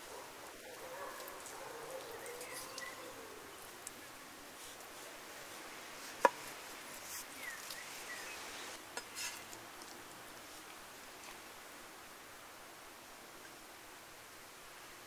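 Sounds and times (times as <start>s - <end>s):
birds chirping faintly: 0.0s - 8.8s
steady outdoor hiss: 0.0s - 15.0s.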